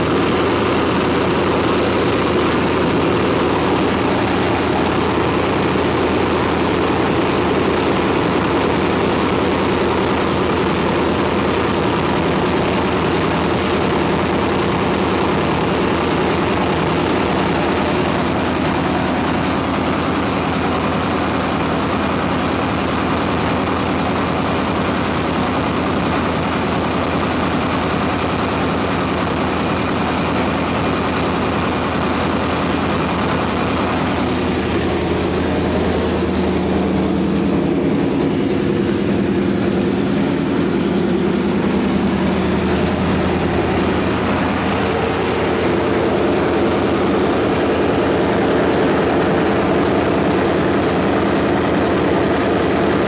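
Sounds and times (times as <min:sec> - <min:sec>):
car engine idling: 0:00.0 - 0:53.0.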